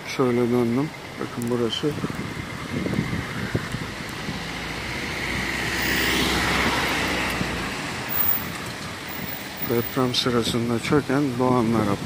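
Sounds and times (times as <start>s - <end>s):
car passing by: 3.2s - 10.2s.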